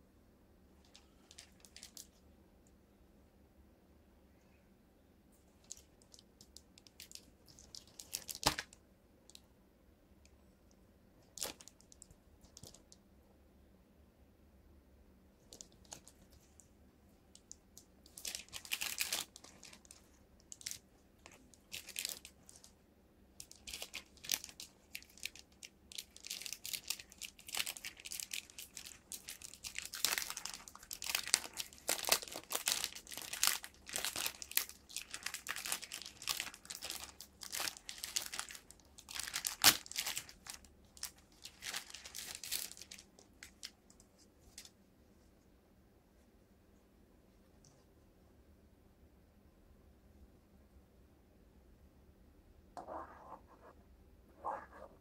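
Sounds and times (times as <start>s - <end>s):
plastic bag crinkling and tearing: 6.8s - 8.8s, 18.1s - 22.7s, 23.4s - 43.7s.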